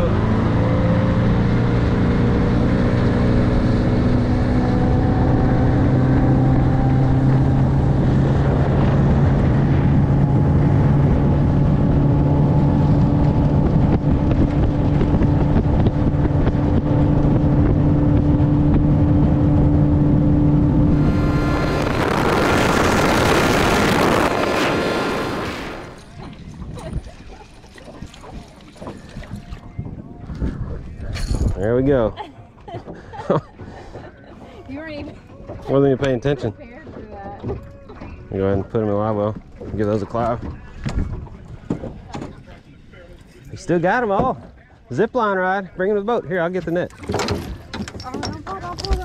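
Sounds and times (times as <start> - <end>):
outboard motor running: 0.0 - 49.0
loud rushing hiss: 20.9 - 26.0.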